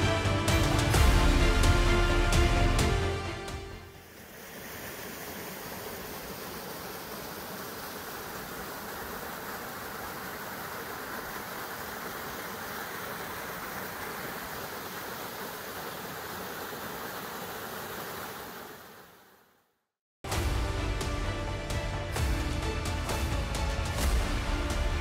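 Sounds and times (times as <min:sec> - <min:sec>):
small waterfall rushing: 0:00.0 - 0:19.5.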